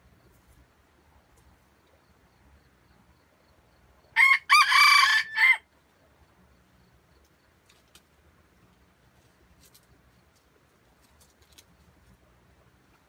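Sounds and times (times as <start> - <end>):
rooster crowing: 4.1 - 5.7.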